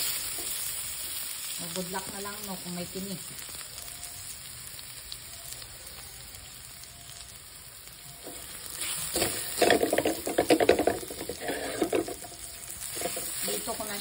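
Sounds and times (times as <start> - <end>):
garlic and onion sizzling in oil: 0.0 - 14.0
spatula scraping a metal pan: 8.8 - 13.8.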